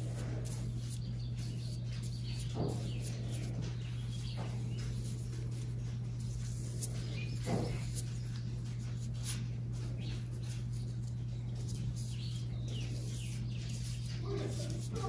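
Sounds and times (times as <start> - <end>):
steady low hum: 0.0 - 15.0
paintbrush tapping on paper: 0.4 - 10.8.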